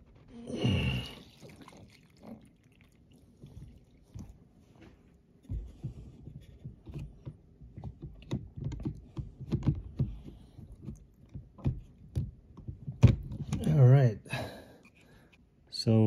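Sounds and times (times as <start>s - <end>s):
plastic clicks and knocks: 5.4s - 13.7s.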